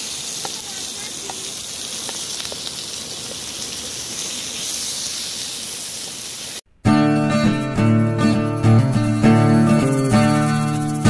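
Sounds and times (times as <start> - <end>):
vegetables sizzling in hot oil: 0.0 - 6.6
acoustic guitar music: 6.7 - 11.0.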